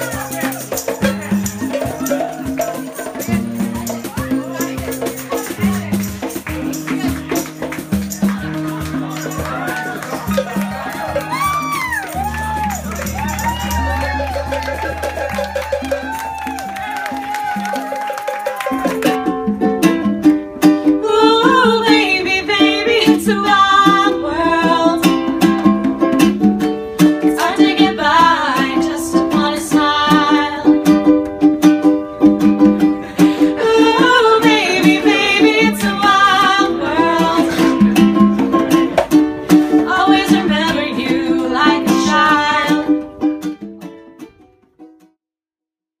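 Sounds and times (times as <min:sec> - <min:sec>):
plucked strings: 0:00.0 - 0:17.9, 0:18.6 - 0:45.1
person singing: 0:33.2 - 0:38.2, 0:39.8 - 0:43.1.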